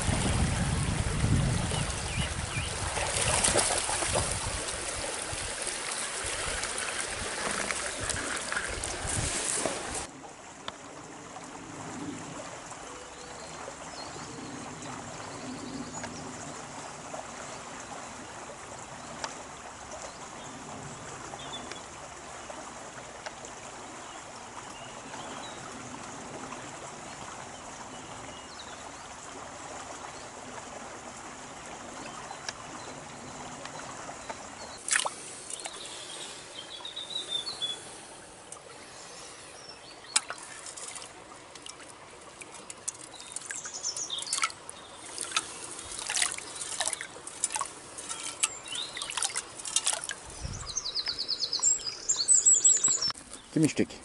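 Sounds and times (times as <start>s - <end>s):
stream flowing: 0.0s - 54.0s
bird chirps: 50.4s - 53.7s.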